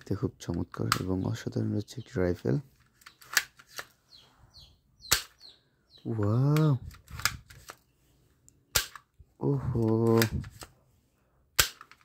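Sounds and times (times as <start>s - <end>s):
toy shotgun clicking: 5.1s - 5.4s, 8.7s - 9.1s, 11.6s - 12.0s
plastic rattles: 11.6s - 12.0s.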